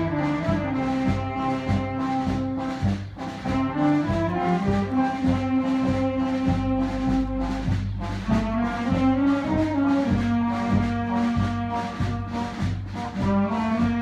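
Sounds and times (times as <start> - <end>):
low drum beat: 0.0 - 14.0
wind band playing: 0.0 - 14.0.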